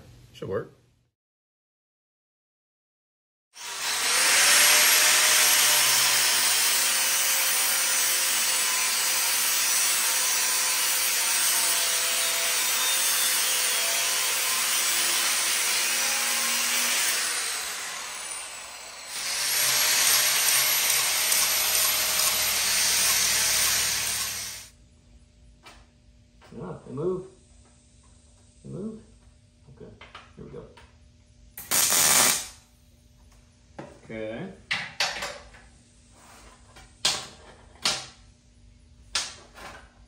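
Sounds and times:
power saw cutting steel: 0:03.6 - 0:24.7.

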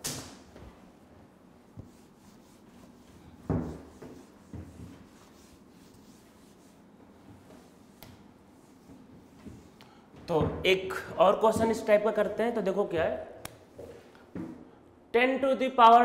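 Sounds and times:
duster rubbing across whiteboard: 0:01.7 - 0:09.8.

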